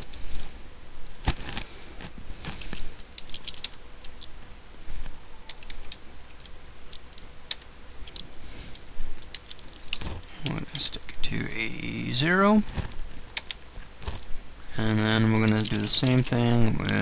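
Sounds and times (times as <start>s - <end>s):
keyboard typing clicks: 3.2s - 4.3s, 5.5s - 8.3s, 13.4s - 13.6s.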